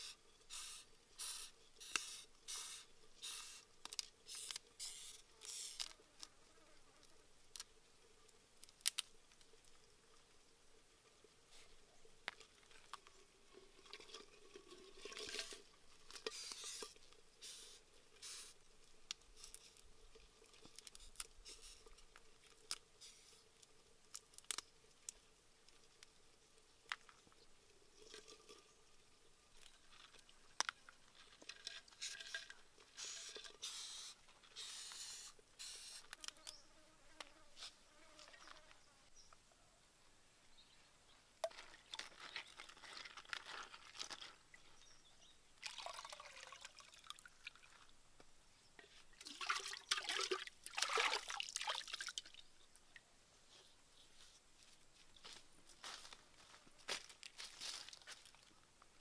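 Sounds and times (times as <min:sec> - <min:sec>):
water splashing onto wet ground: 0:49.2 - 0:52.4.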